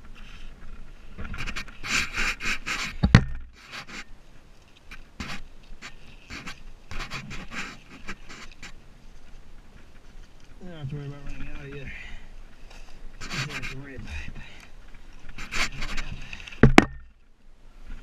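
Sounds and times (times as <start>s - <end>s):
fabric rustling and scraping: 0.0s - 11.8s, 12.8s - 14.1s, 14.8s - 17.0s.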